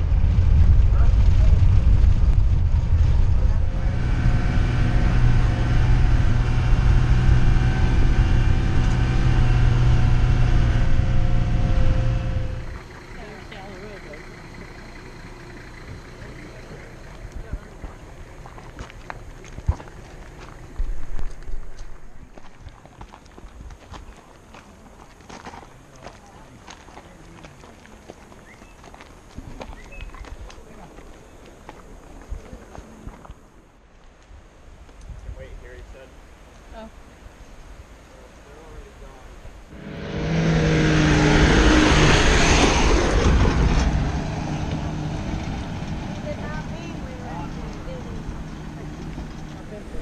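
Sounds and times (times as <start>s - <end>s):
minibus engine drone: 0.0s - 22.5s, 36.4s - 50.0s
footsteps on gravel: 17.0s - 33.4s.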